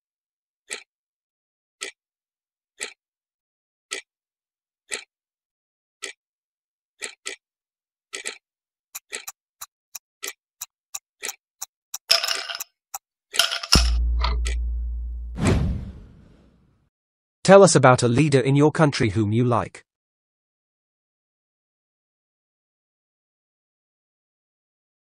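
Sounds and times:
clock ticking: 0.7s - 0.9s, 2.8s - 3.0s, 4.9s - 5.1s, 9.0s - 12.7s, 13.8s - 15.0s
long low tone: 13.8s - 15.4s.

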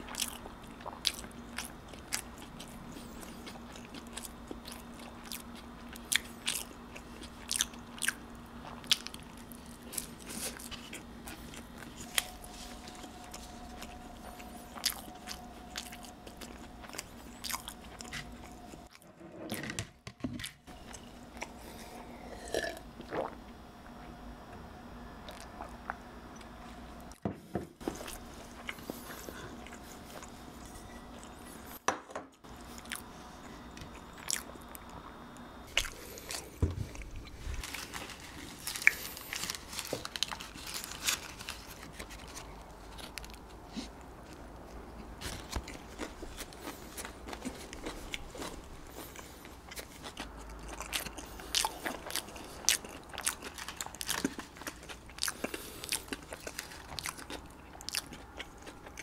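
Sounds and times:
wet chewing and bites: 0.1s - 18.9s, 45.2s - 59.0s
swallowing milk: 22.2s - 23.4s
food crunches: 35.7s - 43.6s, 45.2s - 59.0s.

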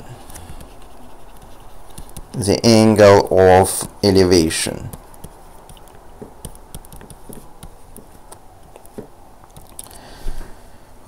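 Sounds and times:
low room hiss: 0.0s - 11.0s
stylus tapping on tablet: 1.4s - 2.4s, 4.9s - 9.7s.

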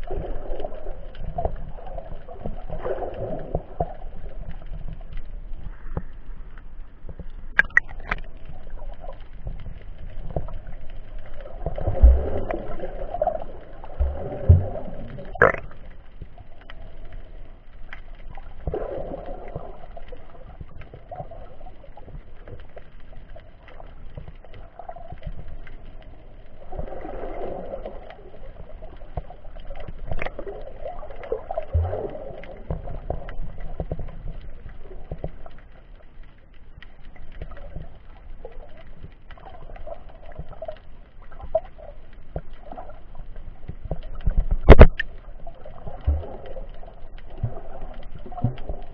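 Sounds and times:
water swishing and gurgling underwater: 0.0s - 48.9s
low rumble: 0.9s - 21.6s.

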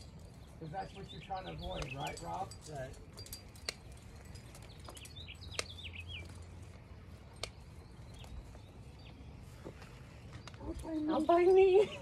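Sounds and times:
bird chirping: 0.0s - 12.0s
sharp clicks: 3.2s - 6.3s.

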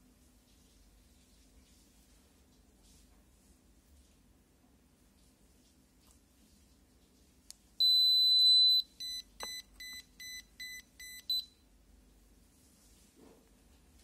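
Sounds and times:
electronic buzzer beeps: 7.8s - 11.5s.

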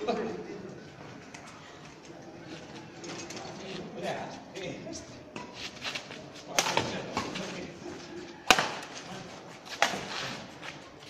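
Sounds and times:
rackets hitting shuttlecock: 6.4s - 7.6s, 8.4s - 10.8s.

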